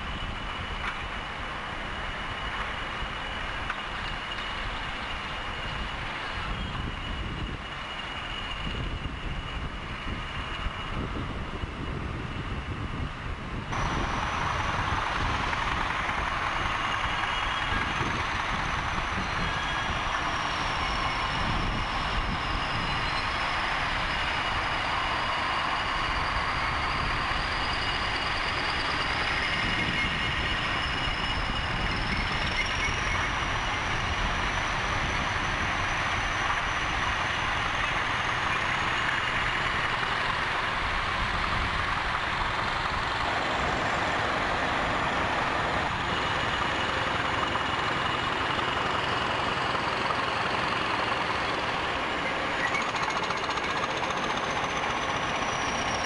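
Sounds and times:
diesel locomotive engine: 0:00.0 - 0:56.0
thin high whistle: 0:13.8 - 0:39.1.

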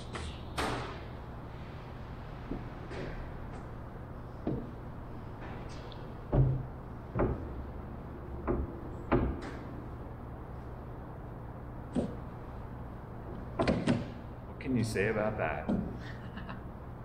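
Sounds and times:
steady low hum: 0:00.0 - 0:17.0
wooden knocks and thumps: 0:04.4 - 0:04.8, 0:06.3 - 0:07.5.

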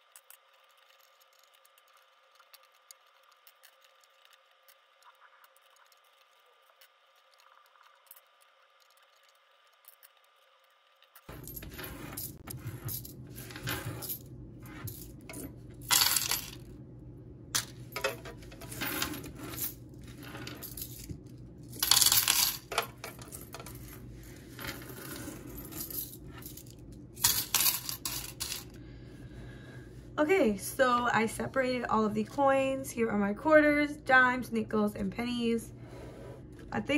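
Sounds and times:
coins clinking and jingling: 0:11.2 - 0:16.7, 0:17.6 - 0:28.8.

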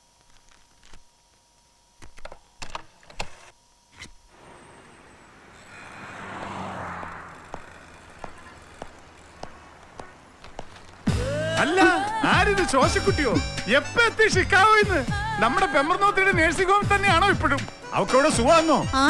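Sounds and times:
street traffic noise: 0:04.4 - 0:19.0
footsteps walking: 0:07.5 - 0:11.2, 0:16.4 - 0:18.5.

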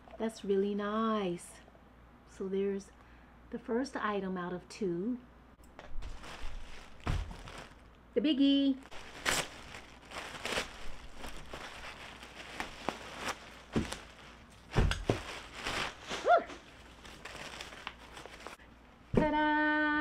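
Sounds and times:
plastic bag crinkling: 0:05.8 - 0:18.6.

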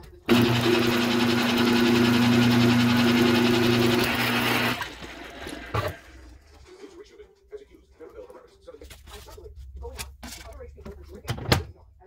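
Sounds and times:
can opener motor humming: 0:00.3 - 0:06.1.

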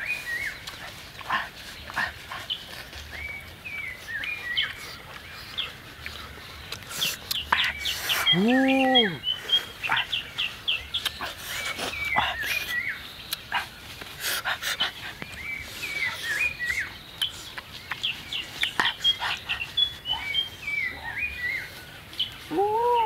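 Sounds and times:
birds chirping: 0:00.0 - 0:23.0
people chewing food: 0:00.0 - 0:23.0.

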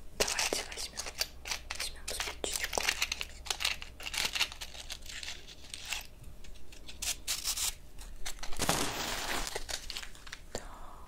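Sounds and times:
match scraping on matchbox: 0:00.2 - 0:06.1
match flaring with a hiss: 0:08.6 - 0:09.7.

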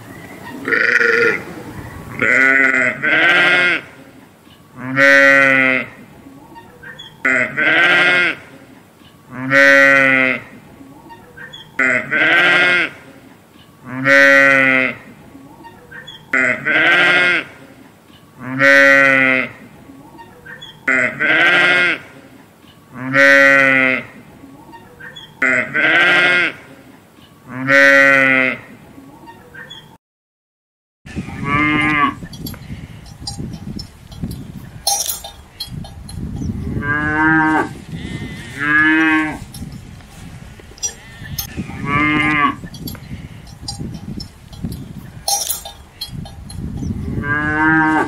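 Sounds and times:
sheep bleating: 0:00.6 - 0:01.4, 0:02.2 - 0:03.9, 0:07.2 - 0:08.4, 0:11.8 - 0:13.0, 0:20.9 - 0:22.1, 0:25.4 - 0:26.6, 0:36.8 - 0:39.4, 0:40.8 - 0:42.7
cows mooing: 0:00.6 - 0:01.5, 0:31.2 - 0:39.8, 0:40.7 - 0:48.0
low rustle: 0:37.2 - 0:46.8.

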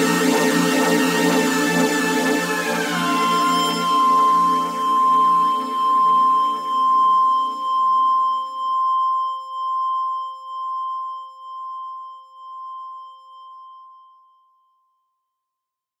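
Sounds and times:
high pulsing sustained tone: 0:00.2 - 0:14.0
electronic music chords: 0:01.1 - 0:06.7.

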